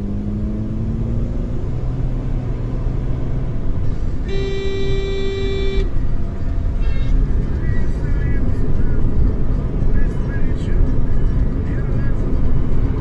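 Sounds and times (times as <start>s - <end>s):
car engine and road noise: 0.0s - 13.0s
car horn blast: 4.2s - 6.1s.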